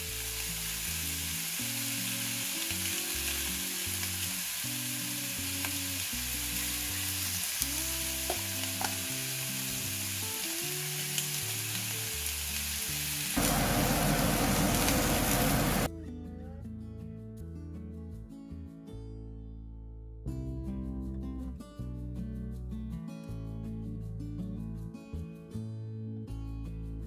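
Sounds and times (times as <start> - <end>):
steaks sizzling in grill pan: 0.0 - 15.9.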